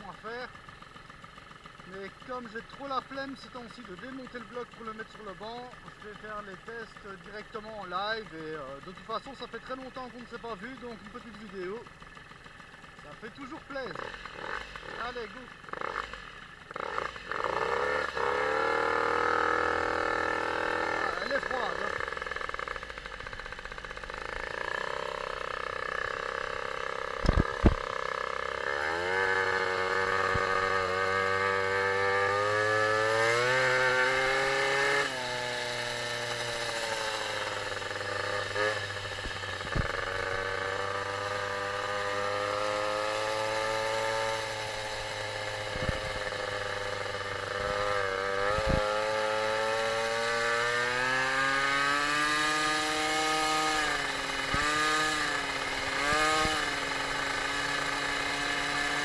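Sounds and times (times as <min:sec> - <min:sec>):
moped two-stroke engine buzzing: 0:00.0 - 0:59.0
sharp knocks: 0:27.2 - 0:27.9.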